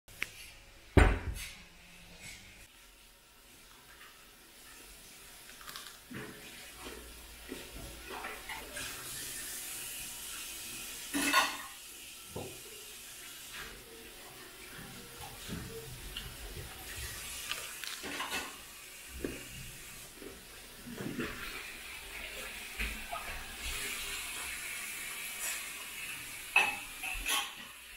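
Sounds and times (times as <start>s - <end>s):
broccoli crunching while chewed: 5.5s - 6.0s.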